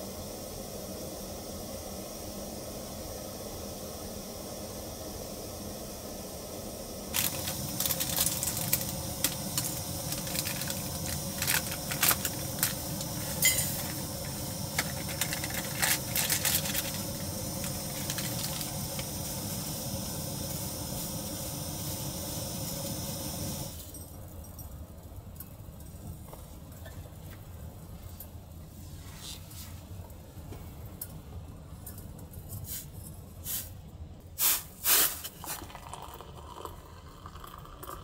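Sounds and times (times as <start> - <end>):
food sizzling and popping: 7.1 - 23.8.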